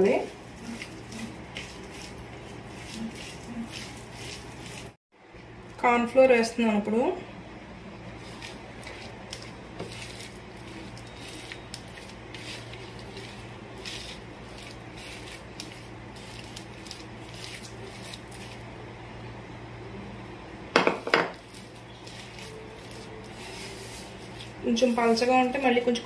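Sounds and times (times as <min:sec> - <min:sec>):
hand squishing dough: 0:00.0 - 0:05.0, 0:08.2 - 0:18.7, 0:21.4 - 0:25.8.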